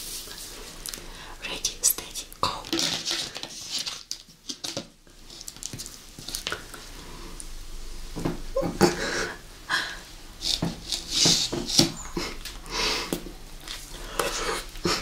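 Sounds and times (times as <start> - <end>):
plastic spoons clicking and scraping: 2.0 - 6.9, 10.4 - 15.0.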